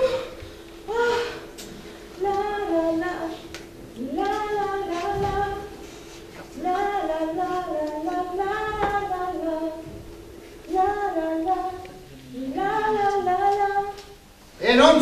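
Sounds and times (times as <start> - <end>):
woman singing alone: 2.2 - 5.8, 6.6 - 9.9, 10.7 - 14.2.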